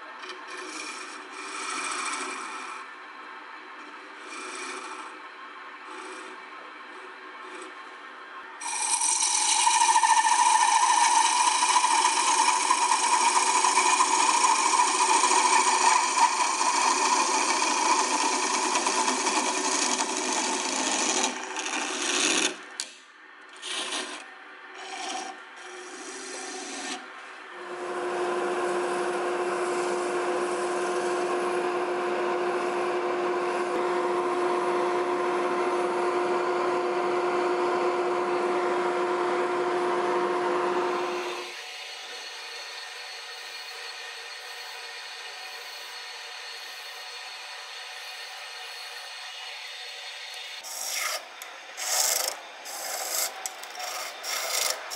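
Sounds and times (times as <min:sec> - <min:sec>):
abrasive pad sanding: 0:00.0 - 0:02.8, 0:04.2 - 0:05.2, 0:08.6 - 0:22.6, 0:24.8 - 0:27.1, 0:28.7 - 0:31.6, 0:50.6 - 0:54.9
chisel cutting wood on lathe: 0:00.0 - 0:02.9, 0:03.8 - 0:05.2, 0:05.8 - 0:07.9, 0:08.6 - 0:23.0, 0:23.6 - 0:49.7, 0:50.3 - 0:54.9
lathe hum: 0:00.0 - 0:23.0, 0:23.6 - 0:54.9.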